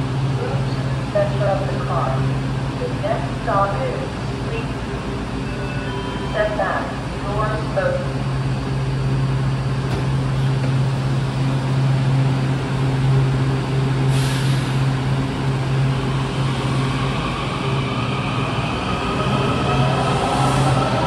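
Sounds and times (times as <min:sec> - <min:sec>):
train hum: 0:00.0 - 0:21.0
short hiss of air: 0:14.1 - 0:14.8.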